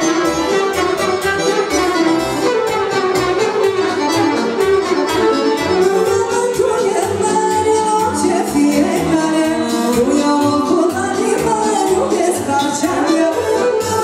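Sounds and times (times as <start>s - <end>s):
accordion playing melody: 0.0s - 14.0s.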